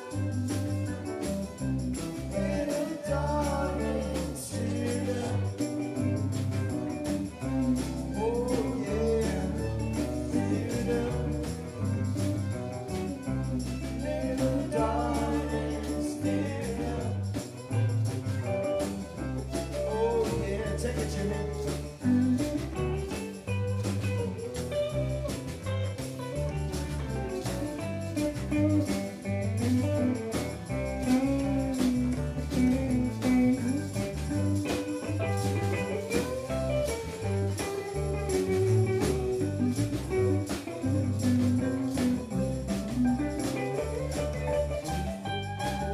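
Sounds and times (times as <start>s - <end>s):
high percussion beat: 0.0s - 45.9s
live reggae band: 0.0s - 45.9s
person singing: 1.9s - 17.8s, 19.4s - 23.4s.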